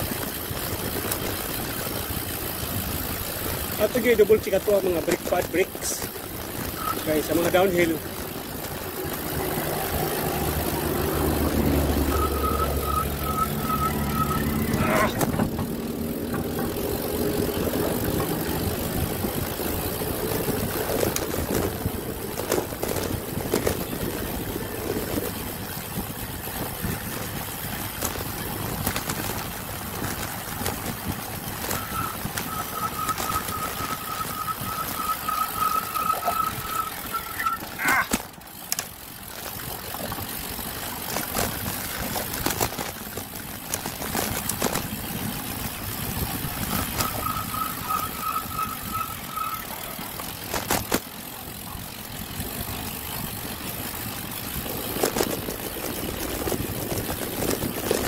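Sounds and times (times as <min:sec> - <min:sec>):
bike tyre and drivetrain noise: 0:00.0 - 0:58.0
high-pitched squeal: 0:09.4 - 0:15.6, 0:31.6 - 0:38.2, 0:46.6 - 0:50.2.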